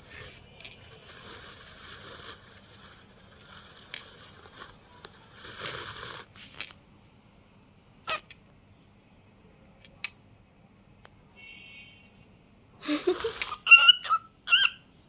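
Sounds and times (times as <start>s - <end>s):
scratchy rustles on microphone: 0.0s - 6.7s.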